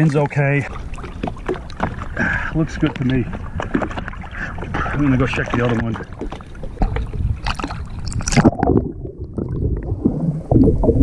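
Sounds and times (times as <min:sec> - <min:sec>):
muffled underwater sound: 0:00.0 - 0:07.2
water splashing: 0:00.0 - 0:11.0.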